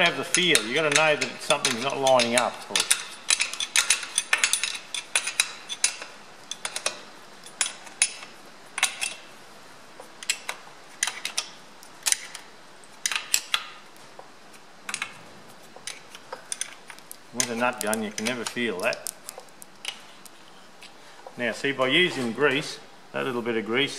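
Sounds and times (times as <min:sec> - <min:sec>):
spanner clinking on nuts: 0:00.2 - 0:09.2.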